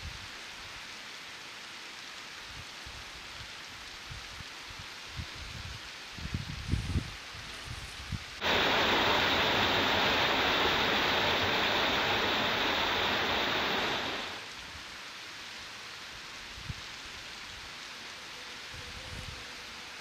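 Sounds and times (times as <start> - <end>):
faint hiss: 0.0 - 20.0
waterfall rushing over rocks: 8.4 - 16.0.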